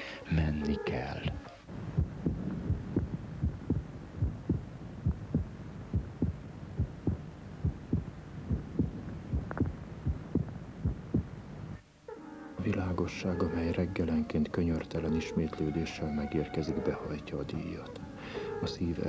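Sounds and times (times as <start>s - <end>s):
low hum: 1.0s - 11.8s
heartbeat thumps: 1.7s - 11.5s.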